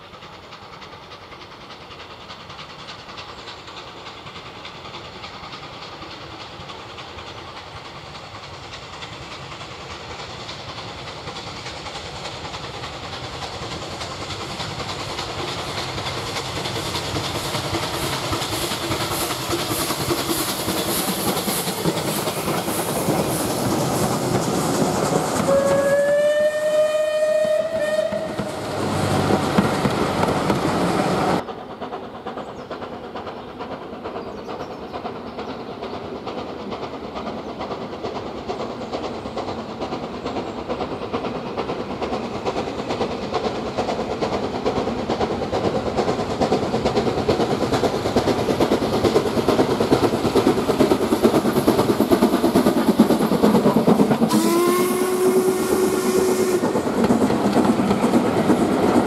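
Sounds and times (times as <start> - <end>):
distant train: 0.0 - 59.0
steam locomotive exhaust beats: 0.0 - 59.0
train rattling past: 0.0 - 59.0
steam whistle: 25.4 - 28.6, 54.3 - 56.8.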